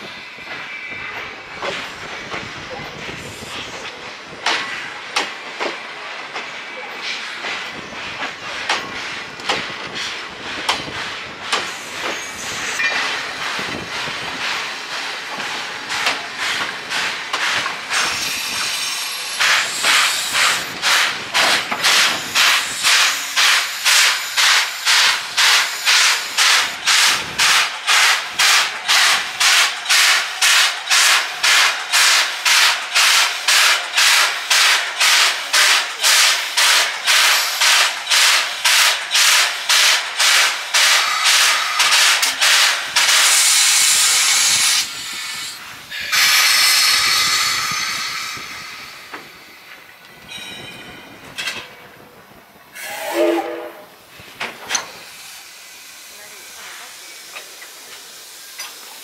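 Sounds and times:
steam hissing: 0.0 - 50.3, 52.7 - 59.0
steam locomotive puffing: 7.0 - 49.9, 52.7 - 59.0.

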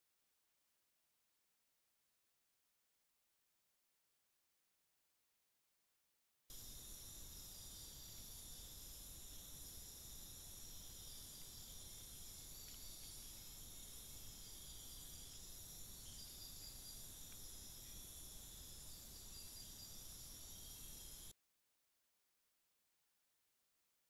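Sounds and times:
insect chorus shrilling: 6.6 - 21.3.

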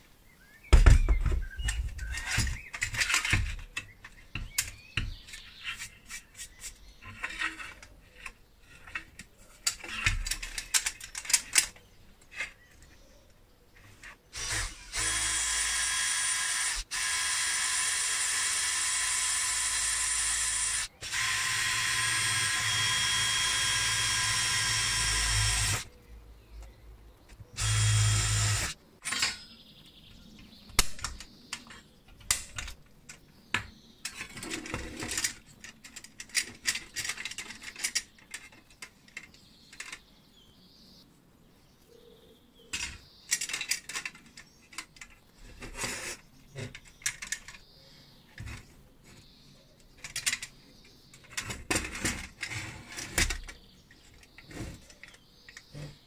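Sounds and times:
cordless drill running: 14.4 - 25.9, 27.6 - 28.8.

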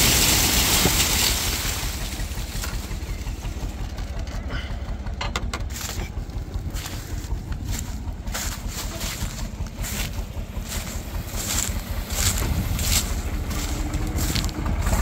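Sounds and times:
tractor engine rumbling: 0.0 - 15.0.

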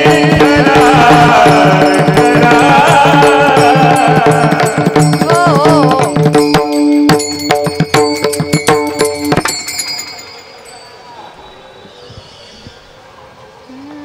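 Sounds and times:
hand drum strokes: 0.0 - 10.2
small hand cymbals: 3.6 - 12.6
woman singing: 5.0 - 6.4.

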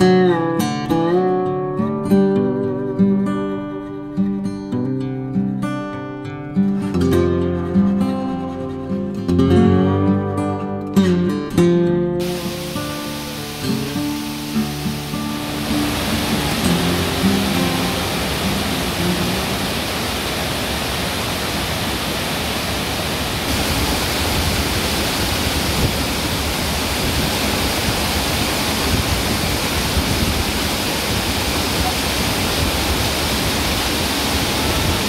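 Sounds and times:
waterfall rushing: 12.2 - 35.0.

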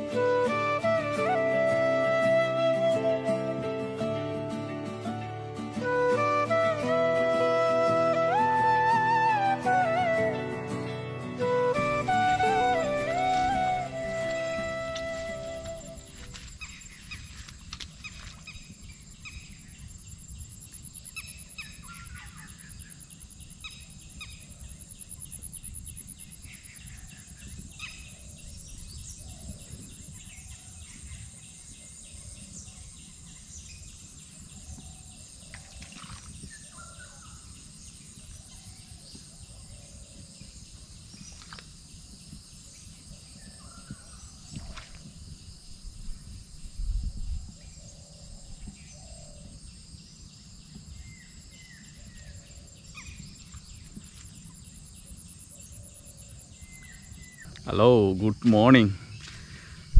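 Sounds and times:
insects trilling: 13.3 - 59.9.

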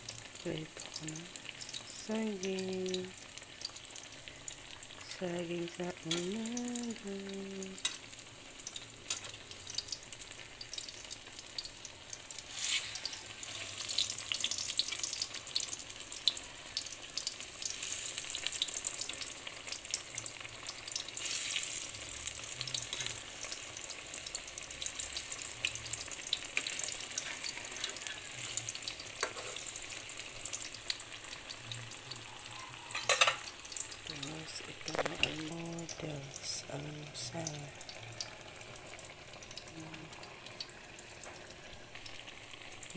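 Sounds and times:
food sizzling in hot oil: 0.0 - 42.9
metal spatula stirring: 26.6 - 29.8, 32.9 - 33.5.

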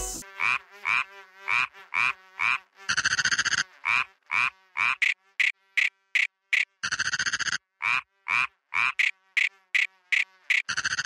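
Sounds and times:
frog croaking: 0.4 - 11.0
frog rattling trill: 4.9 - 11.0.

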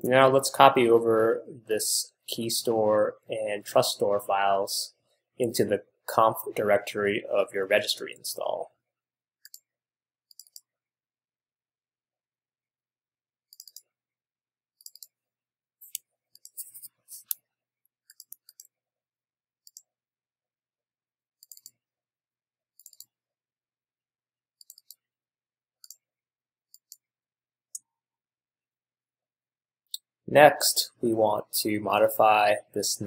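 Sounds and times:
computer mouse clicks: 9.4 - 9.7, 10.3 - 10.7, 13.5 - 13.9, 14.8 - 15.1, 18.0 - 18.7, 19.6 - 19.9, 21.4 - 21.8, 22.8 - 23.1, 24.6 - 25.0, 25.8 - 26.0, 26.7 - 27.0.

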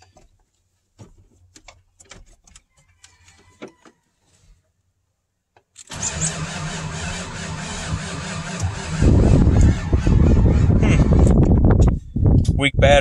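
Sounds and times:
starter cranking diesel engine: 5.9 - 11.6.

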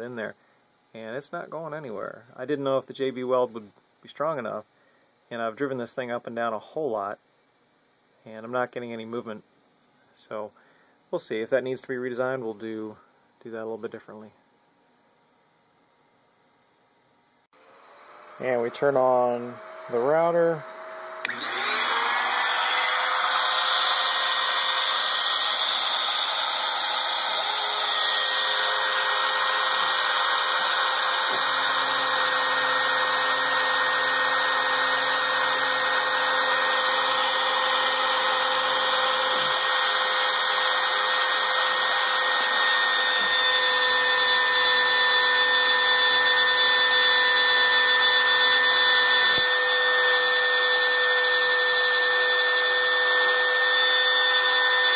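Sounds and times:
wood router whining: 17.6 - 54.9.

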